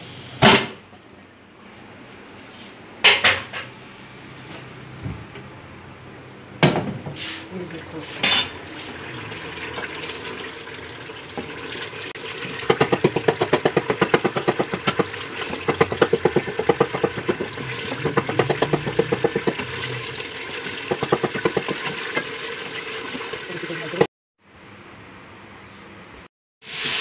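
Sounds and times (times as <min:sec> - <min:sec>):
liquid sloshing: 0:08.6 - 0:23.5
spatula scraping pot: 0:12.3 - 0:23.4.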